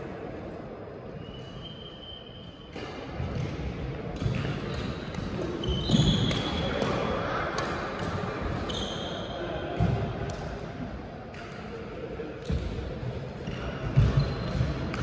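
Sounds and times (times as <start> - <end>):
low hubbub of hall: 0.0 - 15.0
racket hitting shuttlecock: 2.7 - 8.7
shoes squeaking on court floor: 4.3 - 6.7, 8.6 - 9.4, 13.4 - 15.0.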